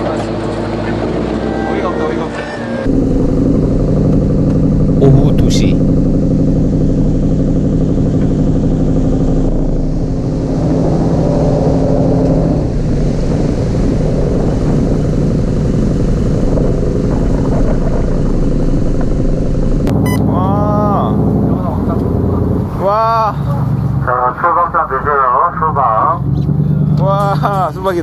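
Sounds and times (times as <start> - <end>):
boat engine drone: 0.0 - 28.0
water and wind noise: 9.6 - 20.2.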